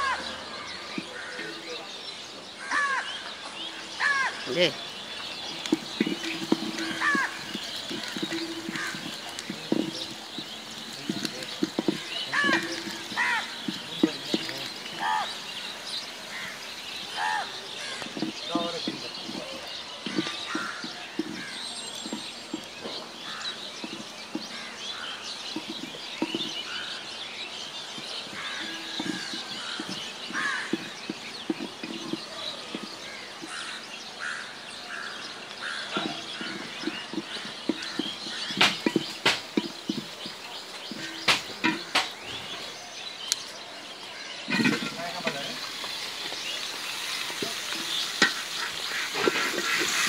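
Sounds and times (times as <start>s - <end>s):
small birds chirping: 0.0s - 50.0s
spatula knocking on pot: 5.5s - 14.8s, 18.0s - 24.6s, 25.5s - 26.8s, 28.0s - 33.6s, 35.9s - 42.2s
spatula scraping a metal pot: 5.5s - 15.0s, 18.0s - 24.6s, 25.5s - 27.0s, 28.2s - 33.6s, 35.8s - 42.6s, 44.4s - 50.0s.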